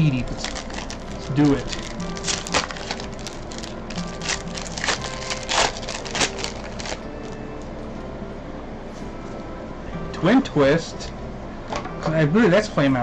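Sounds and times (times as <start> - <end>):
foil wrapper crinkling and tearing: 0.3 - 7.4.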